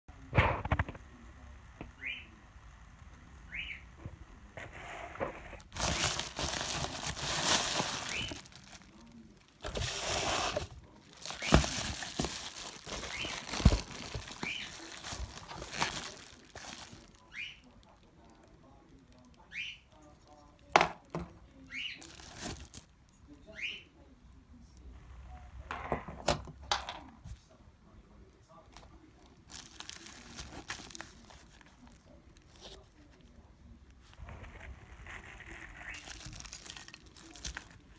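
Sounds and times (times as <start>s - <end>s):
bubble wrap crinkling: 5.4s - 19.4s, 22.0s - 22.9s, 29.1s - 33.4s, 34.0s - 37.9s.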